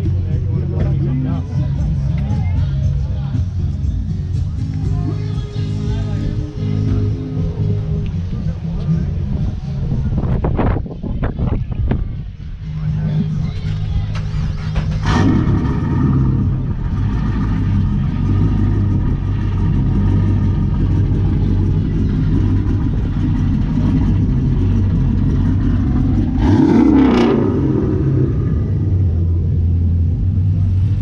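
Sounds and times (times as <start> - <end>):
car engine idling: 0.0 - 11.6, 12.2 - 31.0
engine rev: 12.8 - 31.0.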